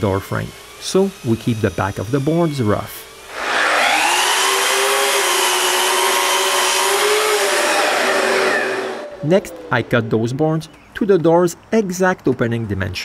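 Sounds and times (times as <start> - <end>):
dust extractor running: 0.0 - 10.2
miter saw cutting wood: 0.0 - 10.4.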